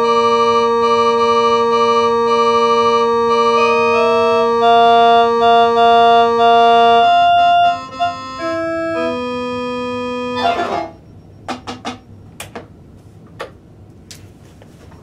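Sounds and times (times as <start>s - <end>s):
electronic keyboard chords: 0.0s - 11.0s.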